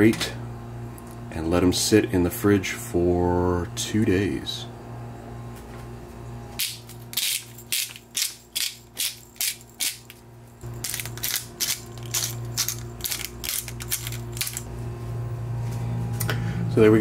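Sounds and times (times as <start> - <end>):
steady low hum: 0.0 - 17.0
pepper mill ratcheting grinds: 6.6 - 14.7.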